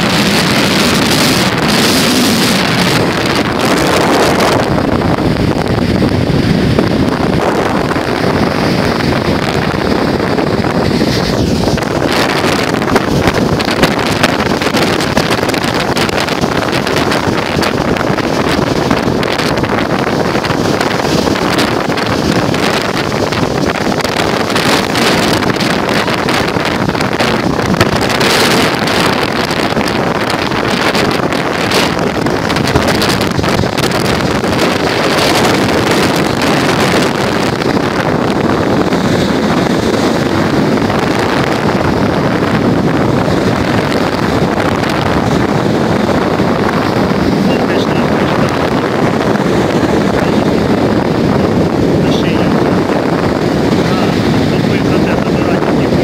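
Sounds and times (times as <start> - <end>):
surf breaking on sandy beach: 0.0 - 56.0
wind blowing across microphone: 0.0 - 56.0.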